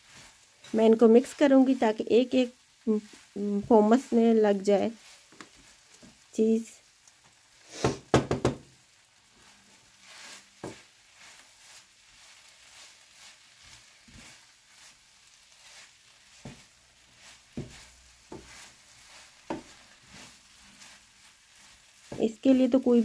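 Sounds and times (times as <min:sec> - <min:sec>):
fries scraping in a pan: 0:00.0 - 0:23.0
spatula knocking against pan: 0:07.9 - 0:08.6.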